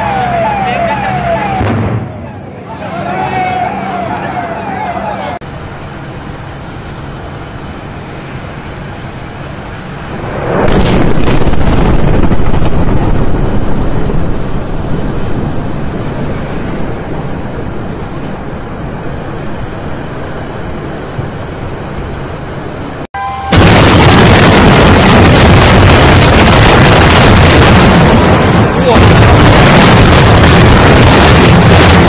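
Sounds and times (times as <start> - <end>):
distant explosion rumbling: 1.4 - 2.8, 10.1 - 18.5, 23.5 - 32.0
wind-like noise: 7.7 - 23.1.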